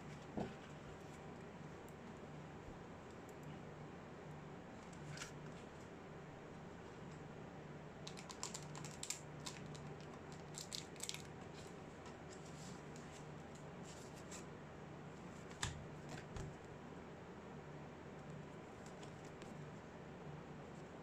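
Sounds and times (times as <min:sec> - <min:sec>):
plastic packaging clicks and rustles: 0:08.0 - 0:11.6.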